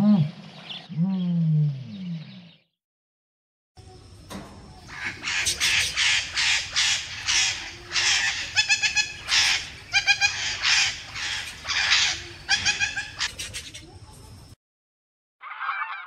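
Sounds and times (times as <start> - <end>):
budgerigars chirping: 4.9 - 13.4
budgerigars squawking: 4.9 - 13.5.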